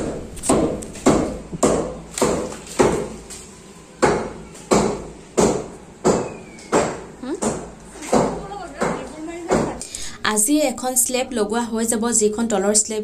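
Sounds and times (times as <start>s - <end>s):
hammer striking concrete: 0.0s - 3.2s, 4.0s - 9.8s.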